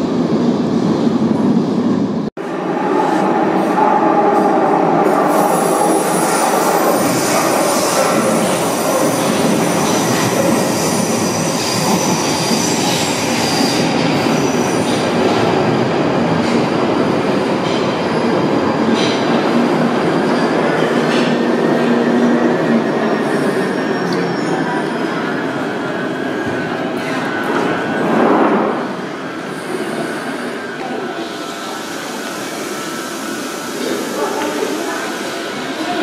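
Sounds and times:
train wheels rumbling on rails: 3.0s - 36.0s.

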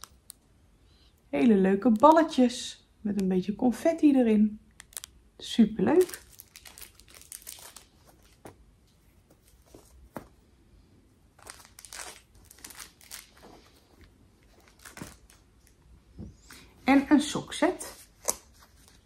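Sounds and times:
packaging rustling and crinkling: 5.9s - 10.4s, 11.3s - 15.8s.

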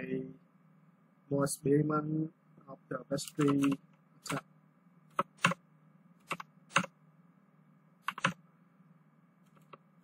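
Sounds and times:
keyboard keystrokes: 3.3s - 4.4s, 5.1s - 5.6s, 6.2s - 6.9s, 8.0s - 8.4s.

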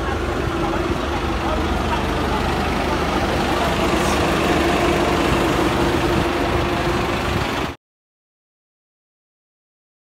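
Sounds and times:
bus engine idling: 0.0s - 7.8s.

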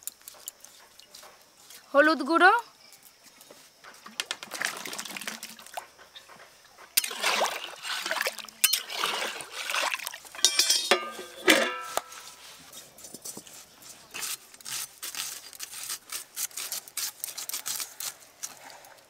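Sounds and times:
potatoes splashing into water: 4.2s - 5.8s, 7.0s - 10.4s
metal lid clanking onto pot: 10.4s - 12.2s.

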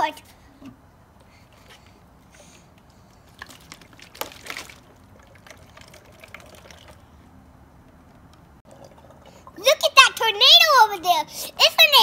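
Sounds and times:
short gurgles and clicks: 3.1s - 7.2s, 8.6s - 9.6s
water swirling and draining: 3.2s - 7.3s, 8.6s - 9.7s.

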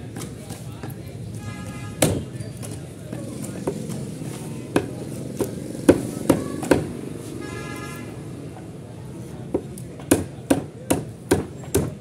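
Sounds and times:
knife chopping on wooden block: 9.5s - 12.0s.

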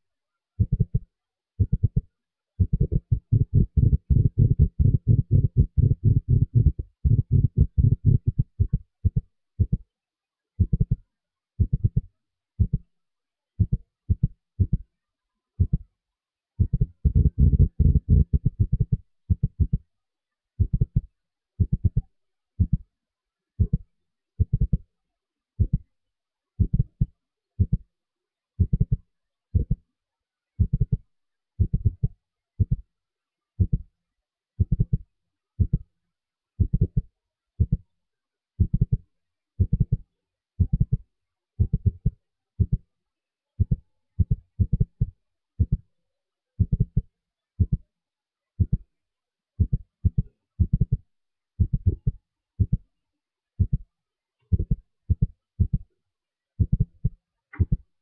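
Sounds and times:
low muffled thumps: 2.6s - 8.8s, 16.6s - 19.8s.

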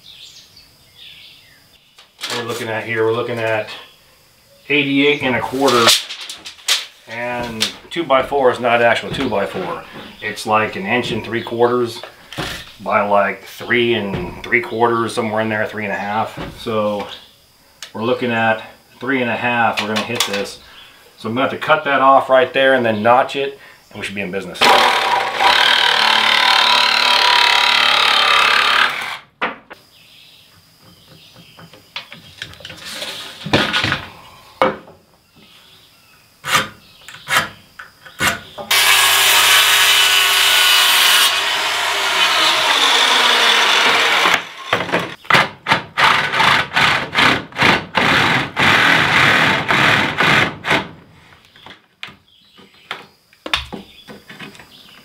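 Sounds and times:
circular saw cutting wood: 24.6s - 29.2s, 38.7s - 45.2s
reciprocating saw cutting metal: 38.7s - 44.8s.

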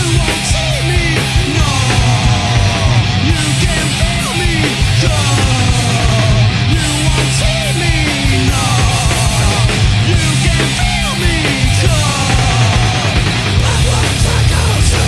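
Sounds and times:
bass: 0.0s - 15.0s
distorted electric guitar: 0.0s - 15.0s
drums: 0.0s - 15.0s.

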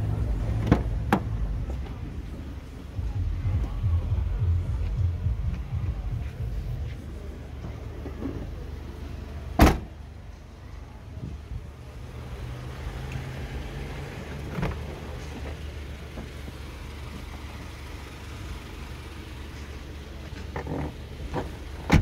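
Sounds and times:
steady low rumble: 0.0s - 22.0s
car door slamming: 0.6s - 1.4s, 9.6s - 10.0s, 20.5s - 22.0s.

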